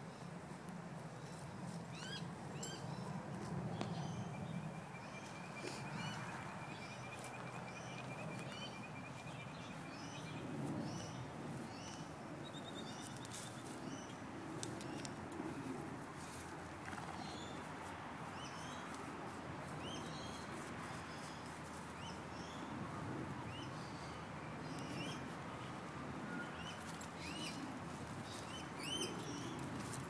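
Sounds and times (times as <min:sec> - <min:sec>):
small birds chirping and trilling: 0:02.0 - 0:15.2.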